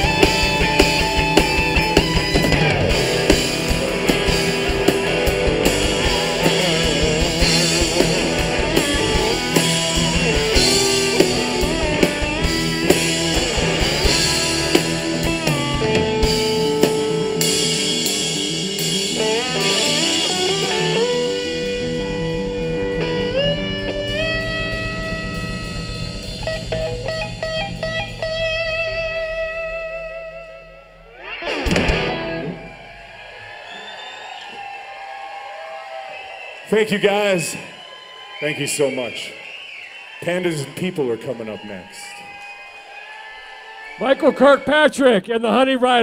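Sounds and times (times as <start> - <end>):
drum kit: 0.0 - 30.6, 31.2 - 35.1
bass guitar: 0.0 - 33.2
electric guitar: 0.0 - 33.4.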